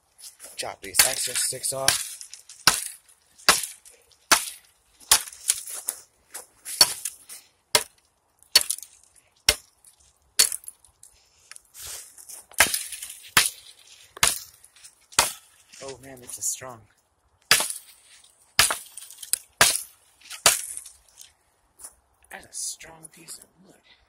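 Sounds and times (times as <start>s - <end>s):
hatchet chopping wood: 0.9s - 5.7s, 6.7s - 9.8s, 10.4s - 10.8s, 12.5s - 15.6s, 17.4s - 18.0s, 18.6s - 20.9s.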